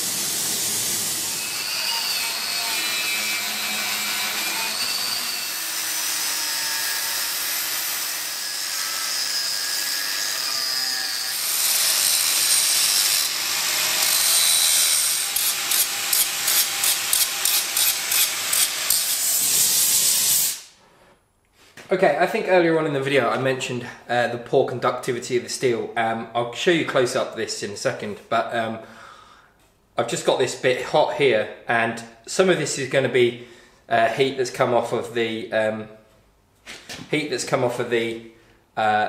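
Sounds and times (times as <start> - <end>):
angle grinder grinding metal: 0.0 - 20.7.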